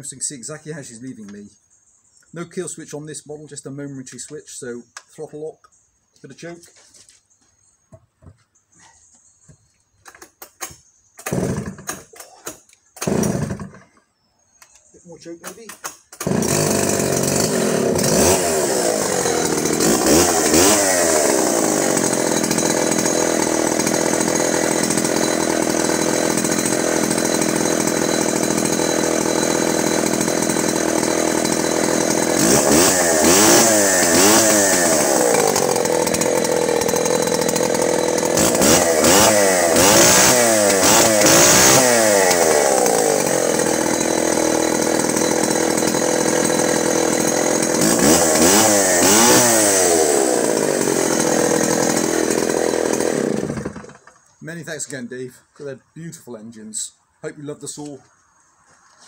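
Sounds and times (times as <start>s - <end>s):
chainsaw revving: 11.2s - 14.0s, 15.5s - 54.3s.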